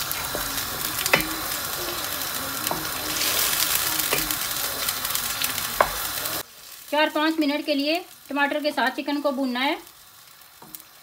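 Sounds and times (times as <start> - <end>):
chicken sizzling in a frying pan: 0.0 - 11.0
spatula knocking against pan: 0.1 - 3.0, 4.0 - 4.5.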